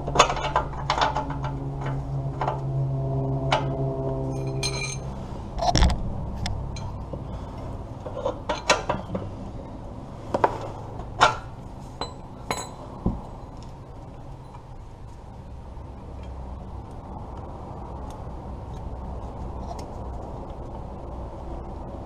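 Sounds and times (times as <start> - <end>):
wrench clinking on metal: 4.4 - 5.1, 12.0 - 12.9.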